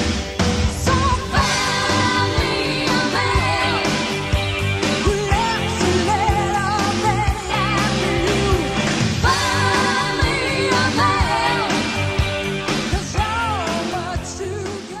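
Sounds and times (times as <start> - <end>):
rock band playing: 0.0 - 15.0.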